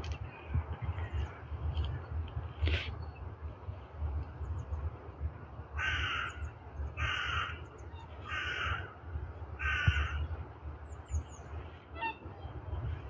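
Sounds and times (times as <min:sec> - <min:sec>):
crow cawing: 0:05.8 - 0:06.4, 0:07.0 - 0:07.6, 0:08.3 - 0:08.9, 0:09.6 - 0:10.2.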